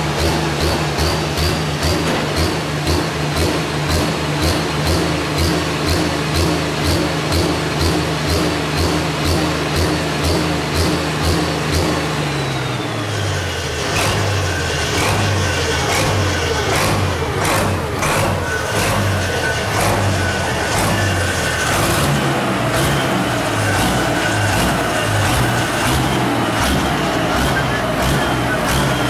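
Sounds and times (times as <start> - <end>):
tractor engine revving: 0.0 - 29.0
falling whine: 12.0 - 29.0.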